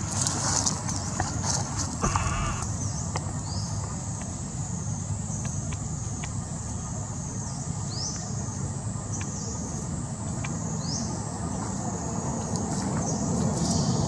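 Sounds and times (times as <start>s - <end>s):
high-pitched insect drone: 2.0s - 2.7s.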